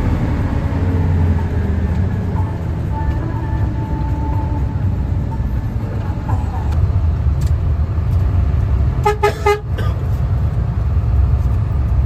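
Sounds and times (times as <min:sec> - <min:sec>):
bus engine rumble: 0:00.0 - 0:12.0
vehicle horn toots: 0:09.0 - 0:09.8.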